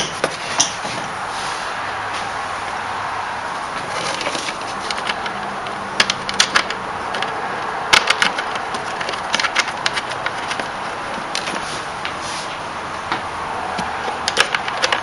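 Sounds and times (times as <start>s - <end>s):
plastic fan clicks and knocks: 0.0s - 1.0s, 3.8s - 12.2s, 13.1s - 15.0s.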